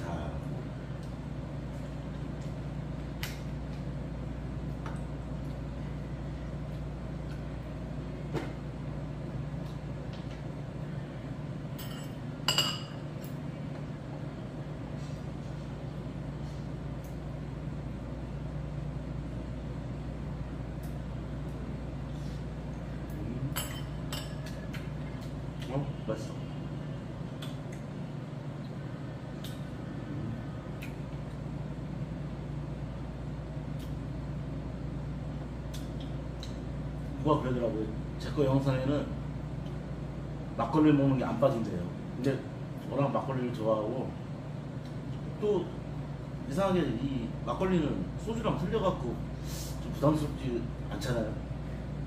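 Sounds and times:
low room hum: 0:00.0 - 0:52.0.

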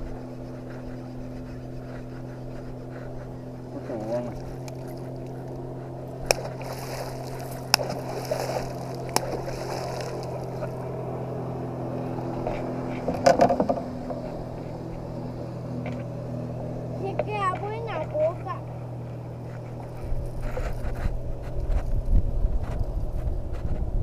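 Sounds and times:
low motor hum: 0:00.0 - 0:24.0
fish splashing in water: 0:06.2 - 0:10.8.

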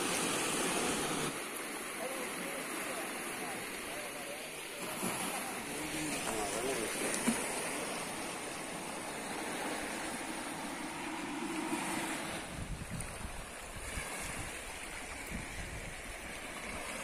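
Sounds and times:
surf washing against rocks: 0:00.0 - 0:17.0
wind buffeting microphone: 0:11.2 - 0:16.3.

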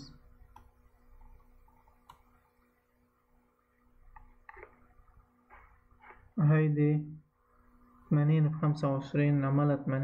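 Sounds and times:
low electrical hum: 0:00.0 - 0:10.0
computer mouse clicks: 0:00.5 - 0:02.4, 0:04.1 - 0:04.8.

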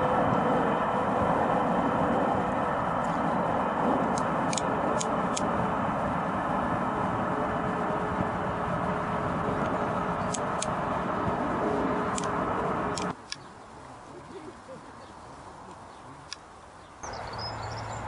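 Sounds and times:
steam train rumbling past: 0:00.0 - 0:13.2
low hum: 0:00.0 - 0:13.4
sharp clicks: 0:10.2 - 0:10.7, 0:12.1 - 0:13.5.

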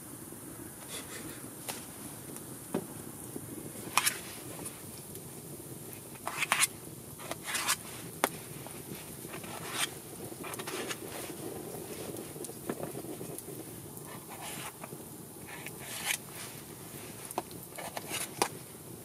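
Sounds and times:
low background noise: 0:00.0 - 0:19.0
knife cutting potatoes: 0:06.2 - 0:07.8.

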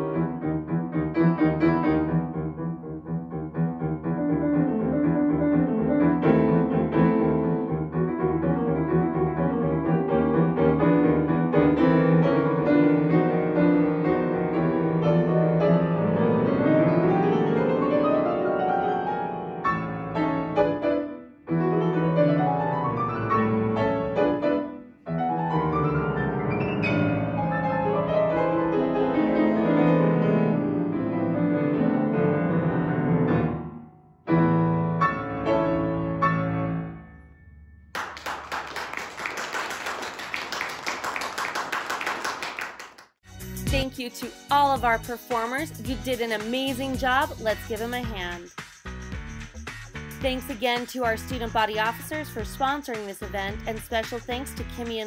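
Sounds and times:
solo classical piano: 0:00.0 - 0:37.8
people clapping: 0:38.0 - 0:43.2.

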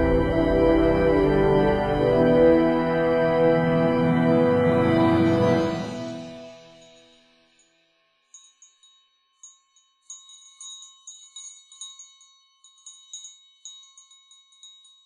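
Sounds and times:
small metal chimes tinkling: 0:06.4 - 0:15.0.

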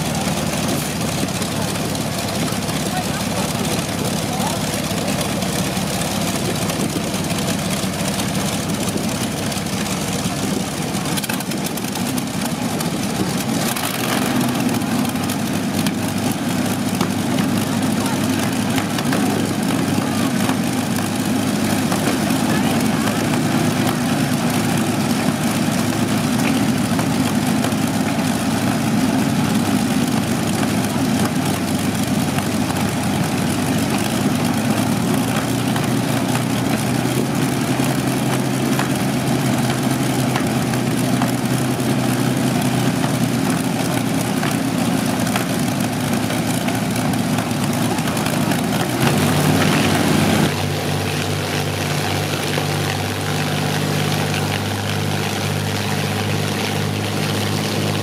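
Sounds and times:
aero engines running: 0:00.0 - 0:58.0.

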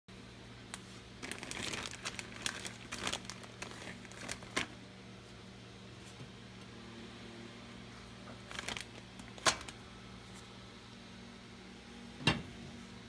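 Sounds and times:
plastic bag crinkling: 0:00.7 - 0:04.8, 0:08.4 - 0:09.8.

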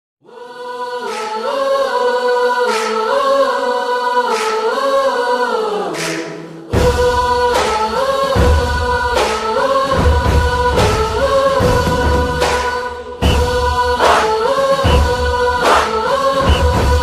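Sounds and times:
choir-like vocal music: 0:00.2 - 0:17.0
heavy bass: 0:13.2 - 0:14.2, 0:14.8 - 0:15.8, 0:16.4 - 0:17.0.

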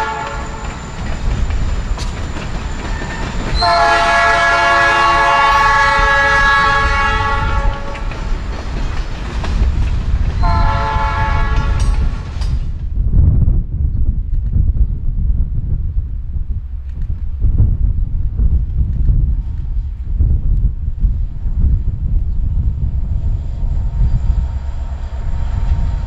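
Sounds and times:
locomotive air horn blasts: 0:00.0 - 0:00.7, 0:03.6 - 0:08.1, 0:10.4 - 0:12.0
freight train rolling rumble: 0:00.0 - 0:26.0.

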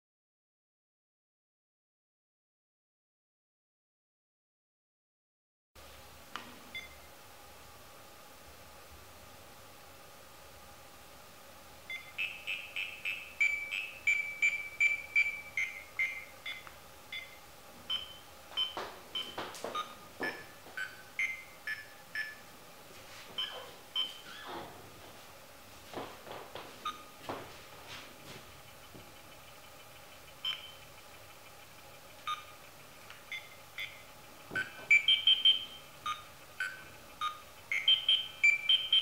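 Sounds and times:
bug detector beeping: 0:11.9 - 0:22.4, 0:23.4 - 0:24.4, 0:30.4 - 0:30.9, 0:33.3 - 0:39.0.

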